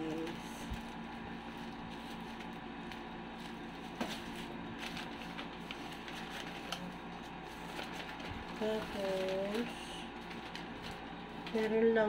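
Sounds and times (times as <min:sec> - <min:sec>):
faint hum: 0:00.0 - 0:12.0
packaging crinkling and clicking: 0:07.6 - 0:11.8.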